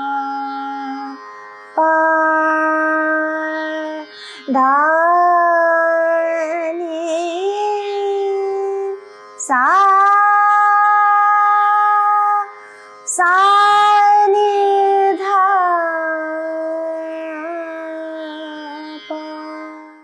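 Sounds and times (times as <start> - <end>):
woman singing classical vocal phrases: 0.0 - 1.2, 1.8 - 20.0.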